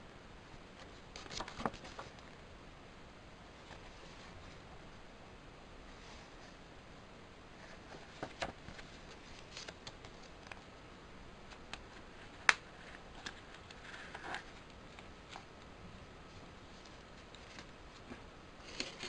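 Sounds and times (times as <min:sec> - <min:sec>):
paper rustling: 0:00.8 - 0:02.3, 0:07.6 - 0:10.7, 0:11.5 - 0:15.5, 0:16.3 - 0:19.0.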